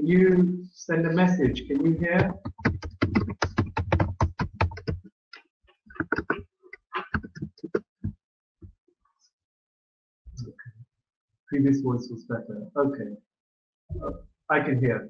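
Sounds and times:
man talking over choppy audio: 0.0 - 3.5, 11.5 - 13.2, 13.9 - 15.0.

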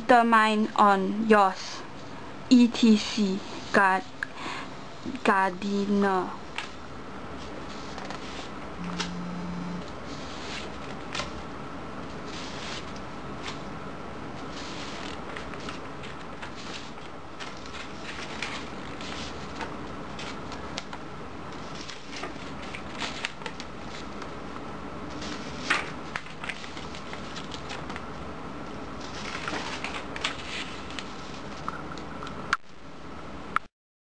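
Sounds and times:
room hiss: 1.4 - 27.5
paper rustling: 7.4 - 9.2, 10.1 - 11.4, 14.4 - 20.9, 21.5 - 24.4, 25.1 - 28.0, 29.0 - 32.0.

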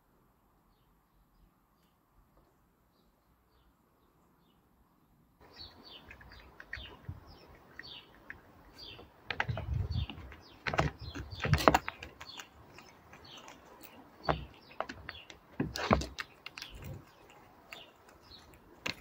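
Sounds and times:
small birds chirping: 0.7 - 19.0
squirrel cracking peanut shell: 5.4 - 19.0.

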